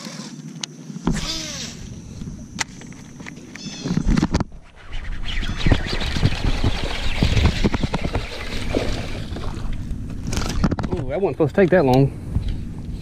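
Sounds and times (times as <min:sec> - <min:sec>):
fishing reel cranking: 0:01.2 - 0:01.8
rod and reel handling noise: 0:05.4 - 0:12.6
rattles and knocks: 0:10.2 - 0:11.2.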